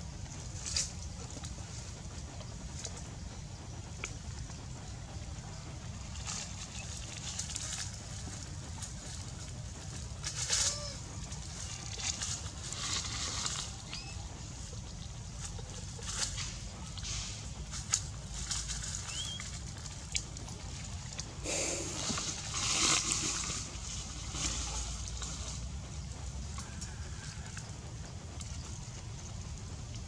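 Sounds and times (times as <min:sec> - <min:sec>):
steady low rumble: 0:00.0 - 0:30.0
dry leaves rustling and crackling: 0:05.9 - 0:25.6.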